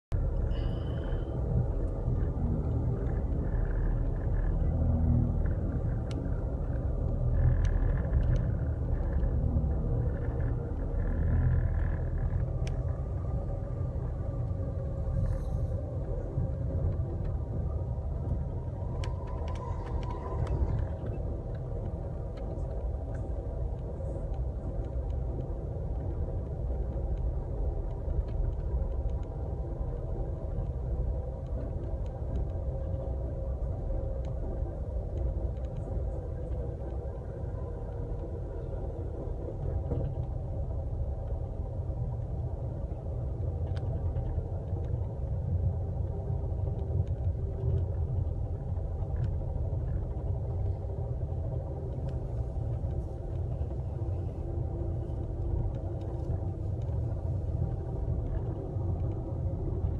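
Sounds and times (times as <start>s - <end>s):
vehicle cabin rumble: 0.0s - 59.9s
faint clicks: 5.4s - 9.4s, 18.3s - 59.9s.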